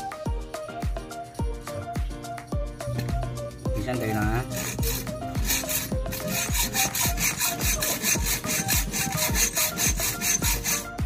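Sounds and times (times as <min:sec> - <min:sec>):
background music with bass beat: 0:00.0 - 0:11.0
hacksaw cutting metal rod: 0:04.4 - 0:11.0.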